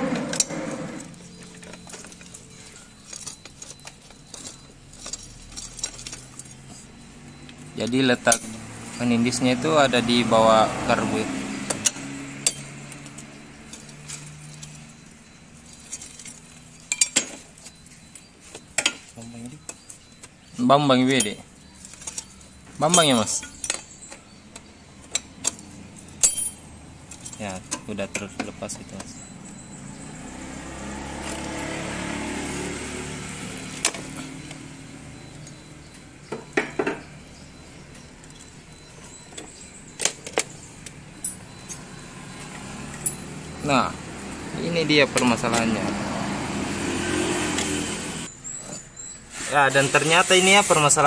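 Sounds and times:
vehicle engine passing: 0.0s - 3.4s, 5.4s - 16.8s, 28.6s - 48.3s
socket wrench clinking on bolts: 11.7s - 17.8s, 21.1s - 29.6s.

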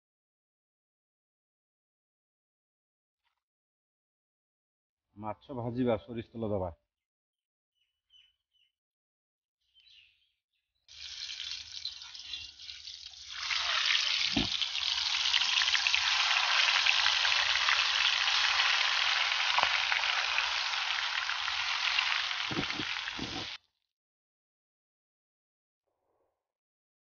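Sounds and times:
fish frying in hot oil: 10.9s - 23.6s.

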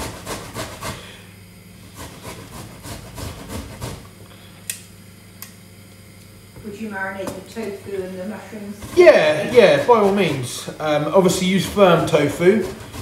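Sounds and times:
ginger grated on metal grater: 0.0s - 1.2s, 1.8s - 4.1s, 8.3s - 13.0s.

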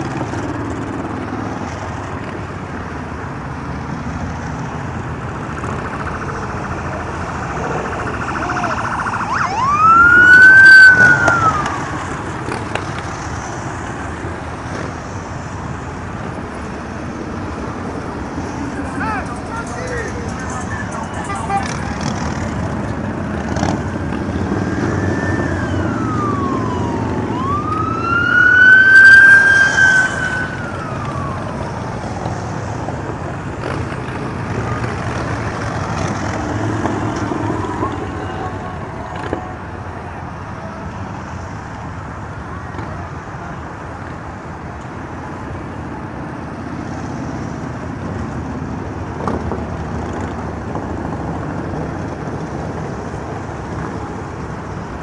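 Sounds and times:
motorcycles passing: 0.0s - 55.0s
siren wailing: 5.7s - 12.4s, 23.6s - 32.3s.

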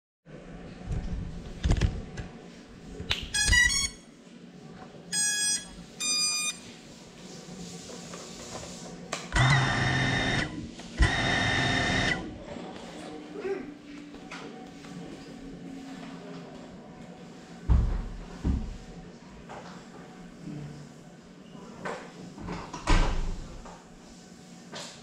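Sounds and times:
electronic beep tones: 5.2s - 6.6s
drone motors whirring: 9.4s - 12.4s.

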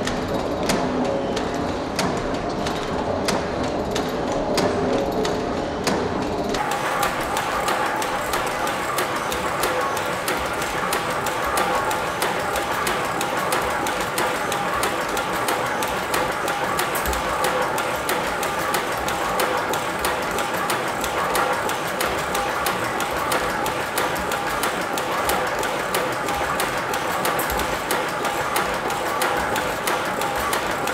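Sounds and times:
model steam engine clattering: 6.6s - 30.9s.

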